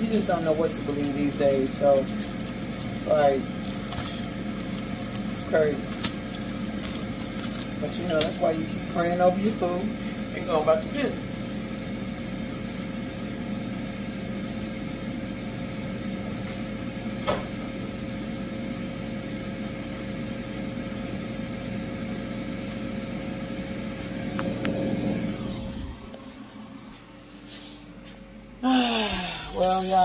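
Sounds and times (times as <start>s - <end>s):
kitchen appliance humming: 0.0s - 30.0s.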